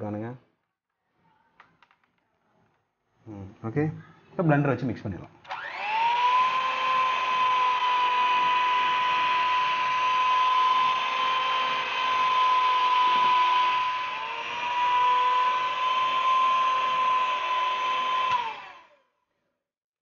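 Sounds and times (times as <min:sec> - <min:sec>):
electric hand mixer whine: 0:05.5 - 0:19.0.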